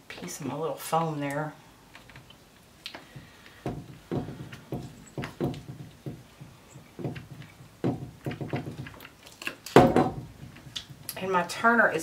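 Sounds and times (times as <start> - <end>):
gloved hand knocking and rubbing: 3.0 - 11.1.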